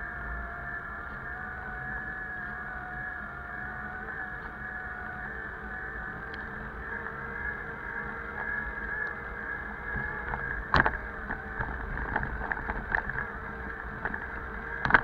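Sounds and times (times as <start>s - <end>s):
wind and road noise: 0.0s - 15.0s
bike knocking and rattling over bumps: 9.8s - 15.0s.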